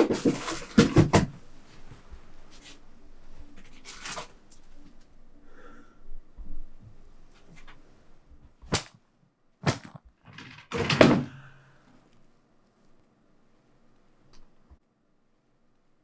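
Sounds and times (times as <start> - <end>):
clatter and thump: 0.0 - 1.4, 9.6 - 11.4.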